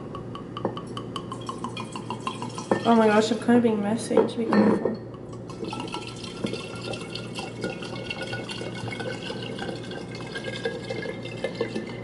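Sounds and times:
liquid pouring into glass: 0.9s - 3.1s, 5.4s - 12.0s.

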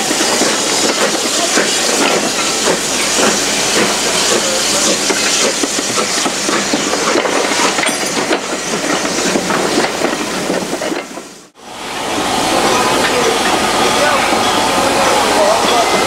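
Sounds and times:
train wheels clattering over rail joints: 0.0s - 11.5s
steam hissing: 0.0s - 16.0s.

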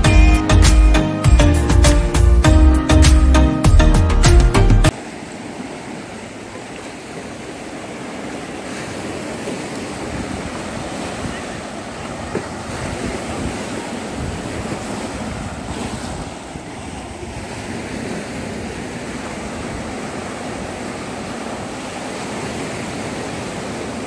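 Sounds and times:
waves breaking on rocks: 4.9s - 24.0s
wind rumbling on microphone: 9.3s - 24.0s.

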